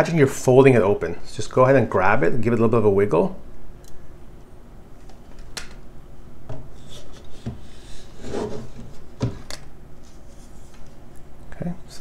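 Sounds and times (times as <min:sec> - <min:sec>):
scraping rub: 0:06.8 - 0:09.0.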